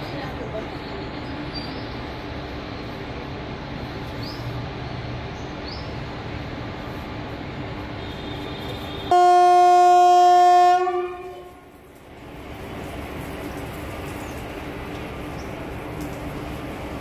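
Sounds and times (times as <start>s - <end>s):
locomotive rumble: 0.0s - 17.0s
locomotive horn blast: 7.9s - 11.7s.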